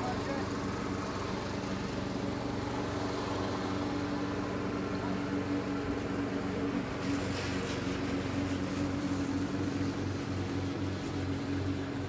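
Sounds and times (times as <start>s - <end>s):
lawn mower running: 0.0s - 12.0s.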